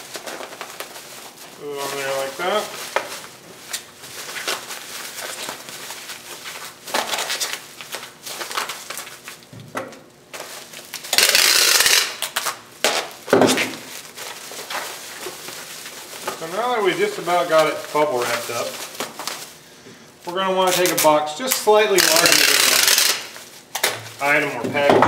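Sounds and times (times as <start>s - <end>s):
bubble wrap crinkling: 0.0s - 9.6s, 10.3s - 24.9s
packing tape pulled off tape gun: 1.9s - 9.5s, 10.3s - 16.5s, 20.6s - 24.3s.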